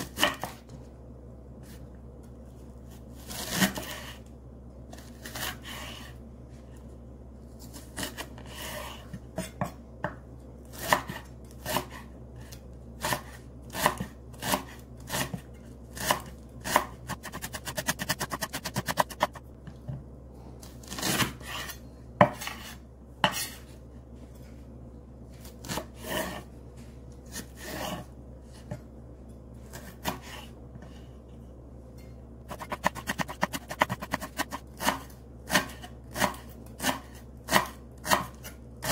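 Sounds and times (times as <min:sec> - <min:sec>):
knife chopping on wooden board: 0:16.0 - 0:19.4, 0:20.9 - 0:23.5, 0:32.5 - 0:38.9.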